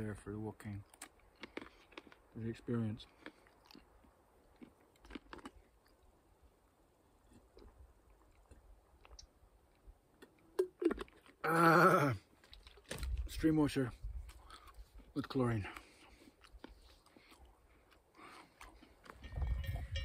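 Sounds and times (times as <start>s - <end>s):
person chewing: 0.8s - 2.3s, 3.0s - 6.2s, 7.1s - 11.6s, 12.2s - 13.1s, 14.1s - 15.1s, 15.7s - 19.2s.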